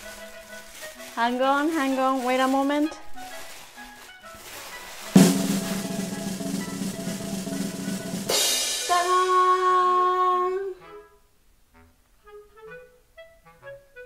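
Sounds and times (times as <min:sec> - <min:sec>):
drum roll: 0:05.1 - 0:09.8
cymbal crash: 0:05.2 - 0:09.4.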